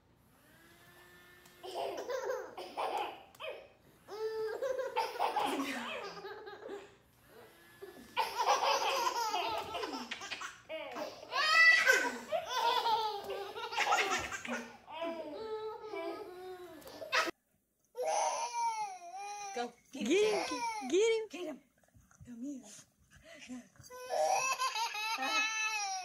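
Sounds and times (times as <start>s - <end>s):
babies laughing: 1.6s - 6.9s, 8.1s - 17.3s, 23.9s - 26.0s
woman laughing: 4.5s - 7.0s.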